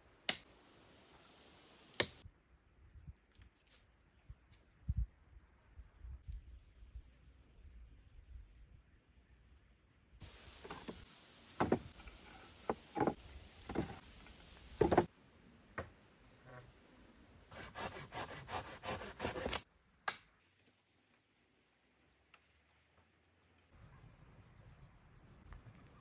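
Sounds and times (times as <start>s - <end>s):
wood knocks and scrapes: 10.6s - 11.0s, 11.6s - 14.0s, 14.6s - 15.1s.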